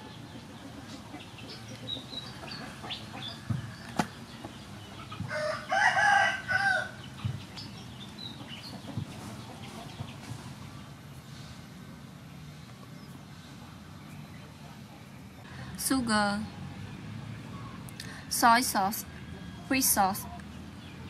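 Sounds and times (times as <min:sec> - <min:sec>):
rooster crowing: 0:05.2 - 0:07.0.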